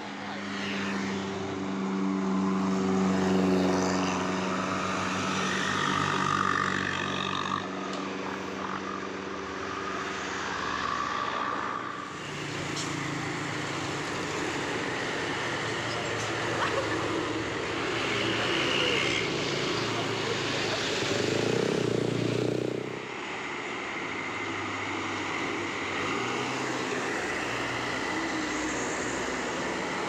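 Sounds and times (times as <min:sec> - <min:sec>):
bus diesel engines droning: 0:00.0 - 0:30.0
traffic: 0:00.0 - 0:30.0.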